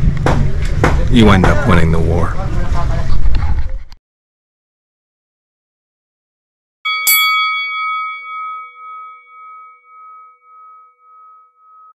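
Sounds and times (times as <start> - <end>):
struck bell chime ringing: 6.9 - 12.0.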